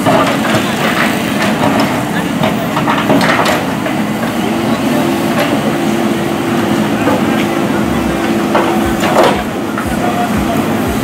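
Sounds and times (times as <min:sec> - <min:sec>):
backhoe diesel engine under load: 0:00.0 - 0:11.0.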